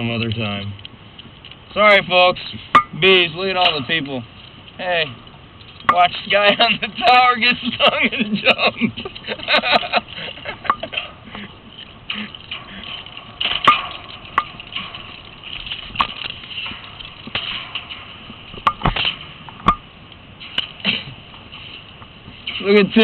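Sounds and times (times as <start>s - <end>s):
knocks and clicks: 12.1s - 22.6s.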